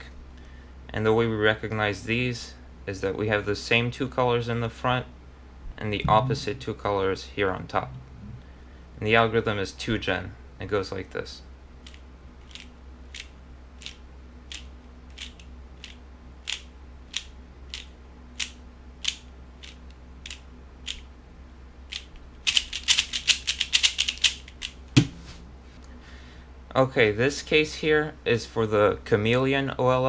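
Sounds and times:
plastic puzzle cube clicking: 21.9 - 24.8
sharp knock: 25.0 - 25.4.

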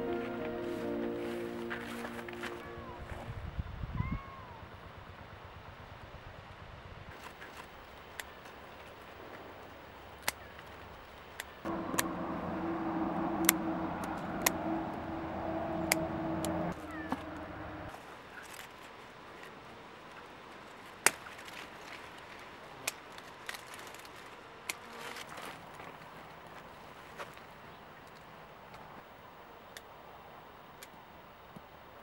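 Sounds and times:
steady engine hum: 11.7 - 17.9.

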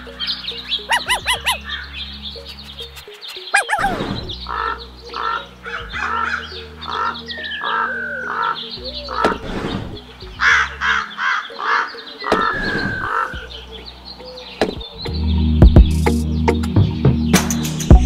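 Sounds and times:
crows cawing: 0.0 - 2.0, 3.6 - 9.4, 10.4 - 13.5
low background music: 0.0 - 18.0
falling whistled bird calls: 0.3 - 5.4, 6.0 - 13.6.

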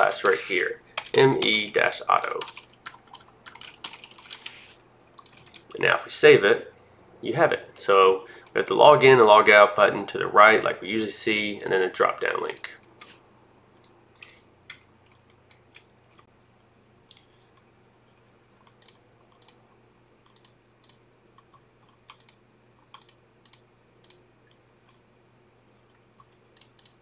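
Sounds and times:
faint steady hum: 0.0 - 27.0
keyboard and mouse clicks: 5.2 - 5.8, 13.8 - 16.3, 18.6 - 19.6, 20.2 - 25.0, 26.2 - 27.0.

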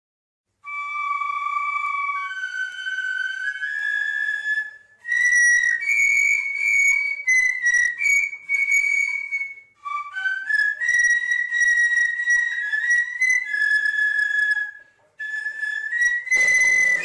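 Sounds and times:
fifes playing a march: 16.3 - 17.0.

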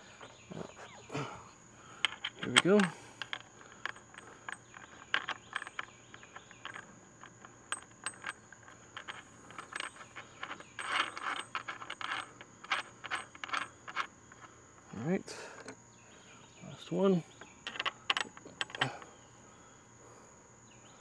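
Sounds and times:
metal washer and nut clinking: 2.0 - 15.0, 17.6 - 19.1.

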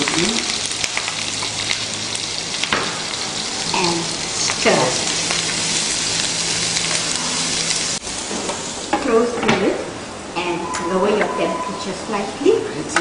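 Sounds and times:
mushrooms sizzling in hot oil: 0.0 - 9.3.

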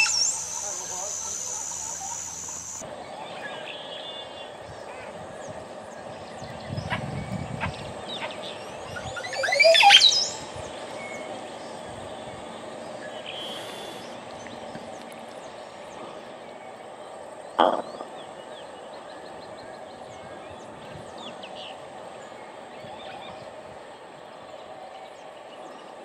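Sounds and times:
bird gurgling song: 0.0 - 2.8
faint bird chirps: 0.0 - 2.8.

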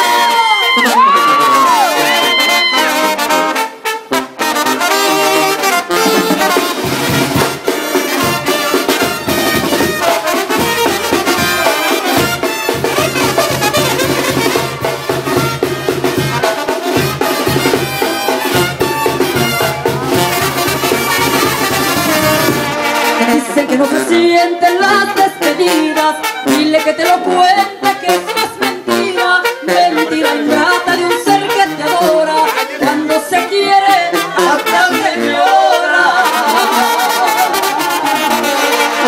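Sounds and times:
trumpets and trombones: 0.0 - 39.0
low bass beat: 19.2 - 21.7.

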